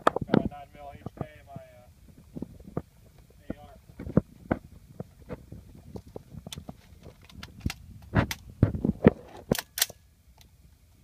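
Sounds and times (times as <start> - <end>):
rifle clicks and clacks: 9.5 - 10.0.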